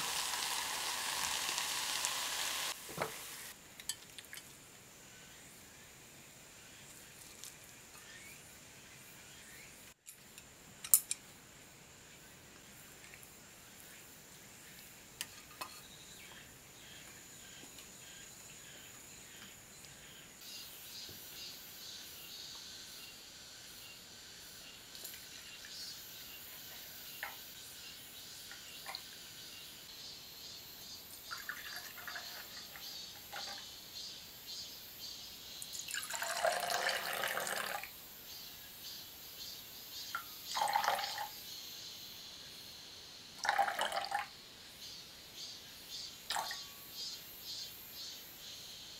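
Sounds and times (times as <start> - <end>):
juice pouring into glass: 31.3 - 33.6, 35.8 - 37.9, 40.6 - 41.3, 43.4 - 44.3.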